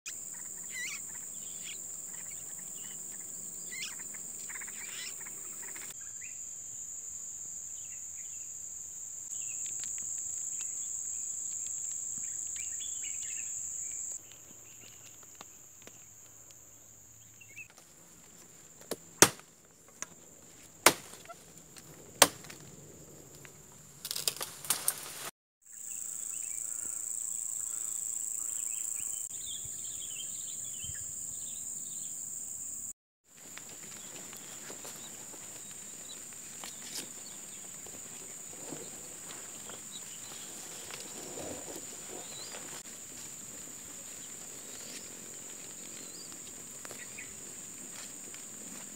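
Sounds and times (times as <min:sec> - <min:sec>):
bird chirps: 0:00.1 - 0:06.4
high insect drone: 0:00.1 - 0:48.9
machete chopping wood: 0:18.9 - 0:19.5, 0:20.8 - 0:21.3, 0:22.2 - 0:22.6.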